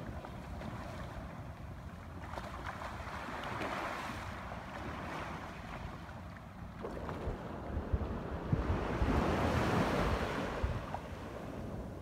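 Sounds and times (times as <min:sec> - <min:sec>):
wind buffeting microphone: 0:06.8 - 0:12.0.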